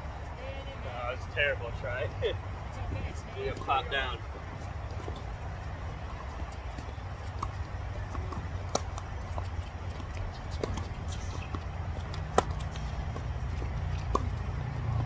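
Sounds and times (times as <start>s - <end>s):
tennis ball bouncing: 3.0s - 15.0s.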